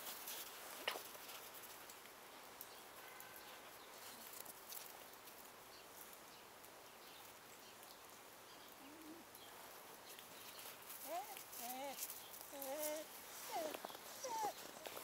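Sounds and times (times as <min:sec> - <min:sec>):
soft crunches of snow: 0:00.0 - 0:06.2, 0:09.4 - 0:15.0.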